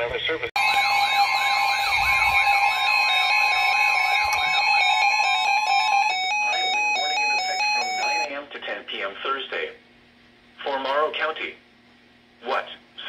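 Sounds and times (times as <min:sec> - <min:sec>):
electronic beeps stepping in pitch: 0:00.6 - 0:08.3
steady alert tone: 0:00.6 - 0:08.3
warbling siren-like tone: 0:00.6 - 0:08.3.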